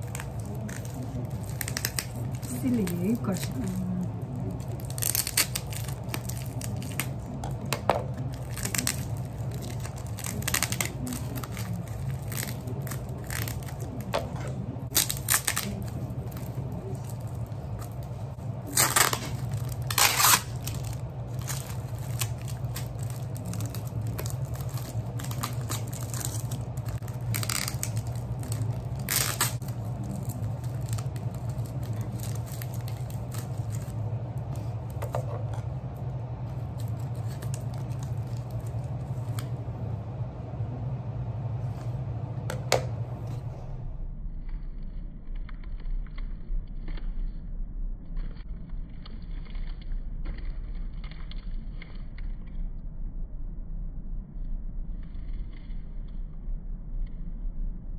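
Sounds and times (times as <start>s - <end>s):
plastic wrapping tearing and crinkling: 0.0s - 39.9s, 44.4s - 47.4s, 48.1s - 52.6s
steady low hum: 0.0s - 57.9s.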